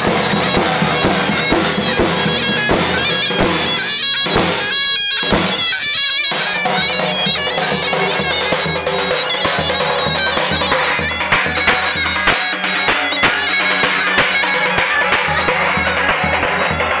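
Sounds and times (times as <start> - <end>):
bass drum beats: 0.0 - 4.7
reedy shawm folk melody: 0.0 - 17.0.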